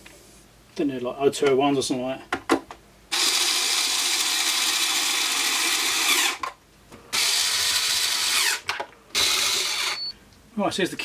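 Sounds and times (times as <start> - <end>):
cordless electric screwdriver: 3.1 - 6.5, 7.2 - 10.0.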